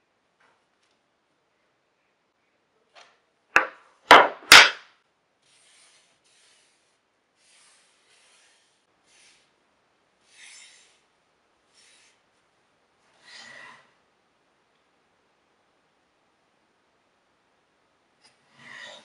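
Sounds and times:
wood knocking on a board: 0:03.6 - 0:04.8.

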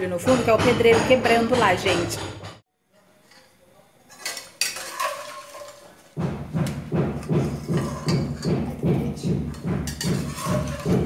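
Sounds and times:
metal spoon scraping a pot: 0:03.2 - 0:06.2, 0:07.2 - 0:08.8, 0:09.5 - 0:11.0.

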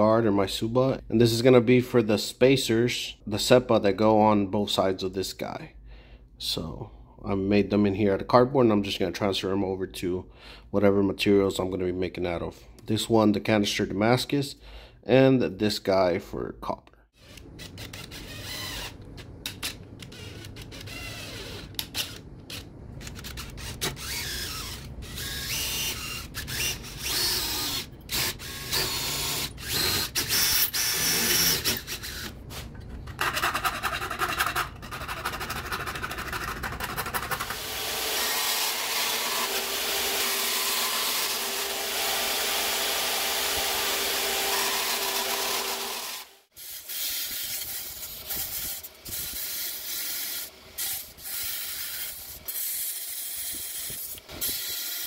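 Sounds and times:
band saw cutting metal sheet: 0:23.5 - 0:55.0
stop-start tool noise: 0:37.1 - 0:55.0.

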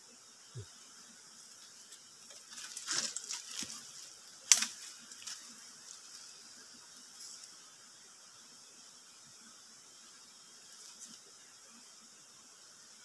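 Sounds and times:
twig cracking: 0:04.5 - 0:05.4.

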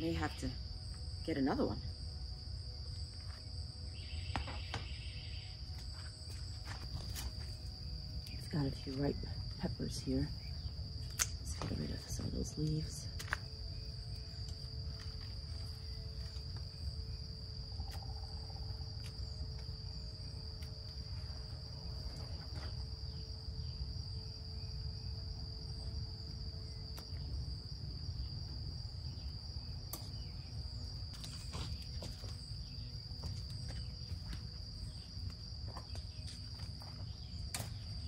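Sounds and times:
crickets trilling: 0:00.0 - 0:38.0
pruning shears snipping: 0:11.1 - 0:11.4.

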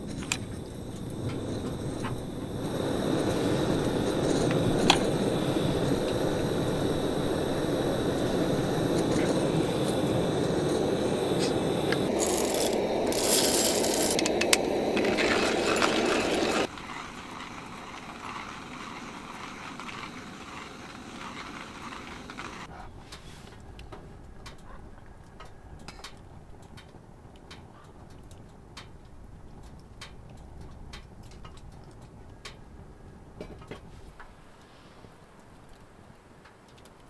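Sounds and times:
coffee beans rattling: 0:00.0 - 0:22.7
camp stove burning: 0:00.0 - 0:24.6, 0:25.4 - 0:37.0
faint outdoor ambience: 0:00.0 - 0:37.0
stove click: 0:00.2 - 0:15.3.

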